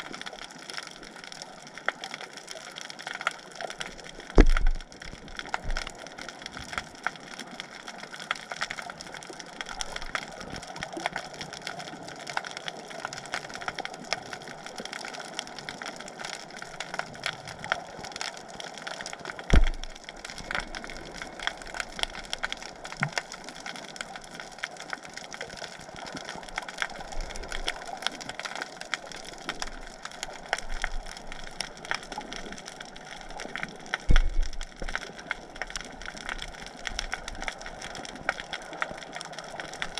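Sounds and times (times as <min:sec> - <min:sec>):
snapping shrimp crackle underwater: 0:00.0 - 0:39.9
dull thump: 0:04.4 - 0:04.8, 0:19.5 - 0:19.9, 0:34.1 - 0:34.5.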